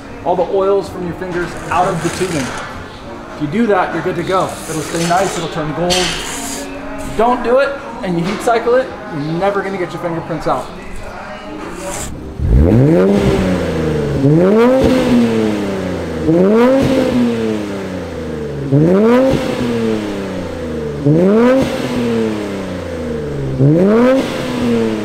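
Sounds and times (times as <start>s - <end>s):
car engine revving: 12.0s - 25.0s.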